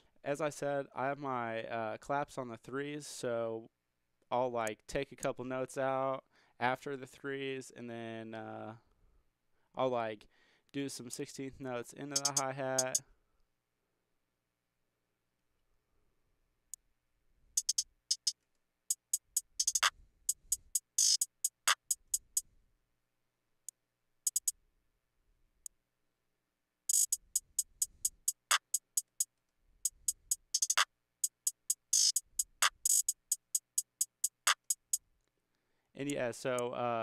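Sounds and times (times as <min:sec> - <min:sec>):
programmed hi-hat pattern: 0:12.1 - 0:13.0, 0:17.6 - 0:22.4, 0:24.3 - 0:24.5, 0:26.9 - 0:35.0.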